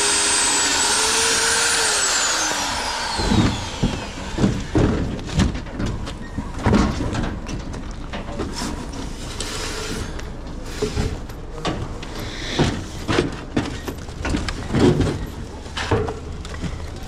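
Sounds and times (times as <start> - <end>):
power tool motor spinning down: 0.0 - 4.6.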